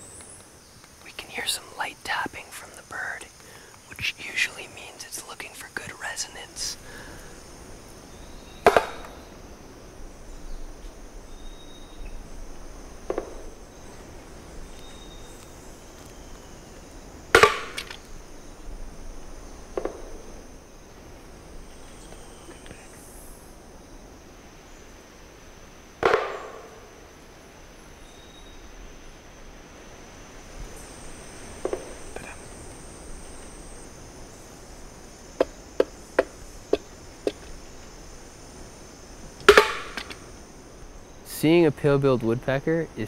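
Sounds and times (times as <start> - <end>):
high insect hum: 0.0 - 43.0
woodpecker knocking: 8.5 - 9.4, 13.0 - 16.1, 17.3 - 18.1, 19.7 - 20.2, 26.0 - 27.0, 31.6 - 33.8, 35.2 - 37.9, 39.4 - 40.4
stick striking wooden box: 8.6 - 9.1, 17.4 - 17.9, 26.0 - 26.7, 39.5 - 40.1.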